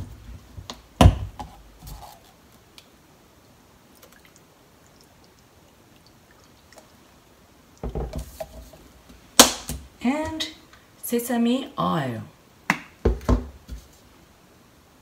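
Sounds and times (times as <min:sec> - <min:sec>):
faint drips and ticks: 0:02.7 - 0:07.8.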